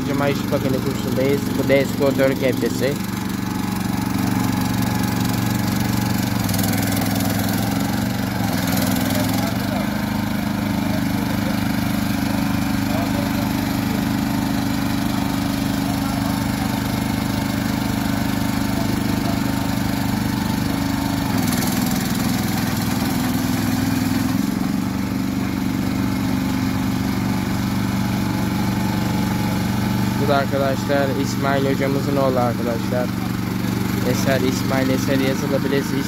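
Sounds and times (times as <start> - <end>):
small excavator engine running: 0.0 - 36.0.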